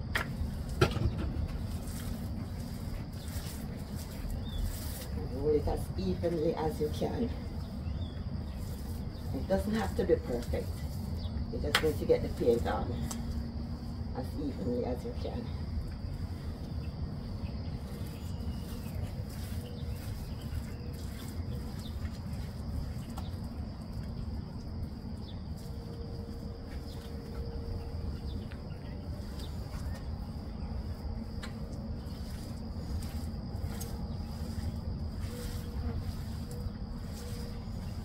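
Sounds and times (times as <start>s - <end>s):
low outdoor rumble: 0.0s - 38.0s
paint roller rolling on floor: 0.0s - 38.0s
high-pitched insect drone: 24.8s - 38.0s.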